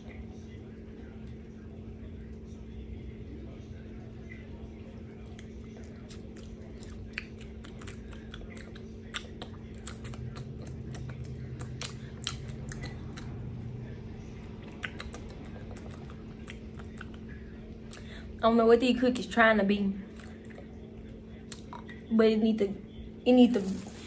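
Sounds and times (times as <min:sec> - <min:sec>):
steady low hum: 0:00.0 - 0:24.0
person chewing crunchy cookies: 0:05.2 - 0:18.1.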